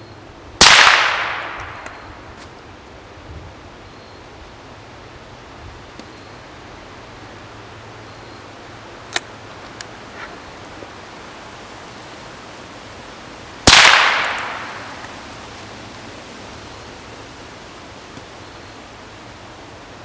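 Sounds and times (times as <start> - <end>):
gunshot with echo: 0.6 - 2.0, 13.7 - 14.9.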